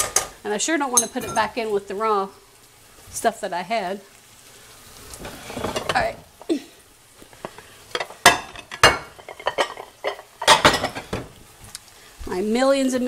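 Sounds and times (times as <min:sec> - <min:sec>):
utensils clinking against pan: 0:00.0 - 0:01.6, 0:07.4 - 0:11.3
beef sizzling in a frying pan: 0:00.0 - 0:13.0.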